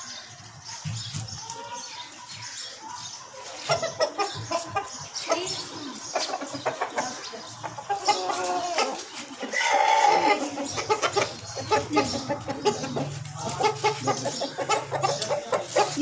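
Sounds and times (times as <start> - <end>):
chickens clucking: 0.0 - 16.0
drawn-out chicken call: 3.5 - 16.0.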